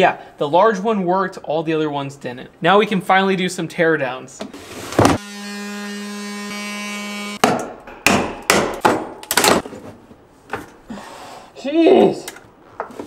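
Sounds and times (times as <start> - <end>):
power tool cutting plastic: 4.9 - 7.4.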